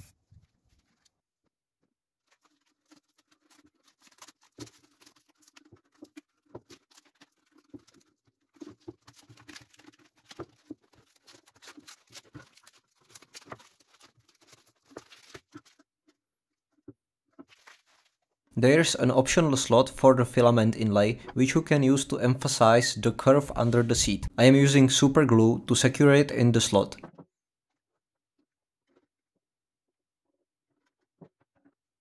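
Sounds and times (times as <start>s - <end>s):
masking paper crinkling and tearing: 2.2s - 16.2s, 17.4s - 27.1s.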